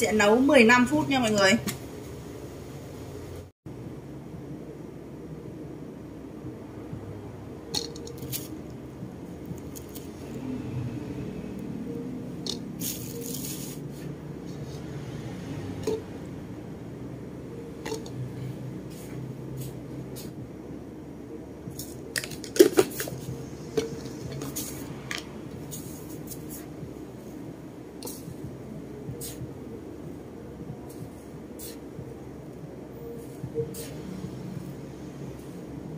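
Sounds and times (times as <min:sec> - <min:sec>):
low steady hum: 0:00.0 - 0:35.9
leaves rustling: 0:12.8 - 0:13.9.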